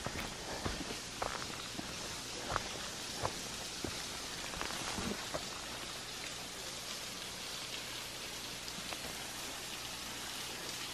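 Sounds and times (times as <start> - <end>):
soft footsteps on trail: 0.0 - 5.9
waterfall hiss: 0.0 - 10.9.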